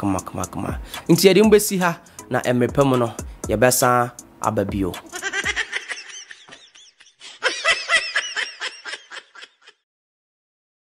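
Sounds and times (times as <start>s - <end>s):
high-pitched giggles and snickers: 5.1s - 9.8s.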